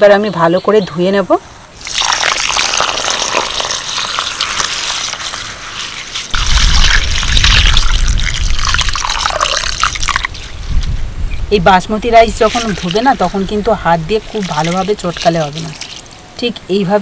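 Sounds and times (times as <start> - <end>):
water pouring into steel bowl: 1.8 - 10.5, 12.4 - 13.4, 14.3 - 16.2.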